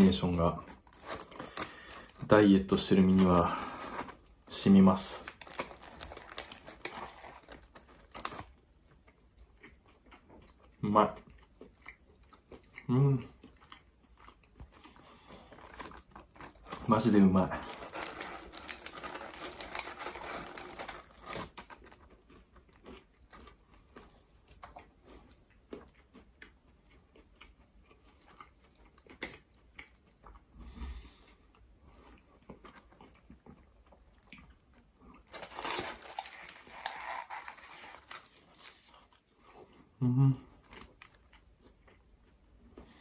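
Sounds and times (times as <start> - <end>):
paper wrapper rustling: 0.0 - 8.5, 15.5 - 22.1, 35.3 - 38.8
person chewing a croissant: 0.0 - 17.0, 17.6 - 43.0.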